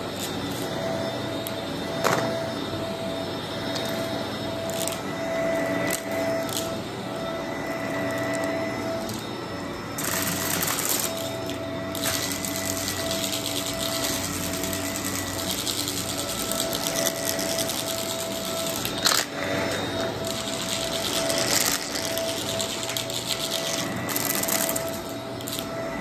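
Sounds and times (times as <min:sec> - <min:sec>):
vacuum cleaner running over carpet: 0:00.0 - 0:26.0
cereal rattling in vacuum: 0:10.0 - 0:19.5, 0:20.1 - 0:25.7.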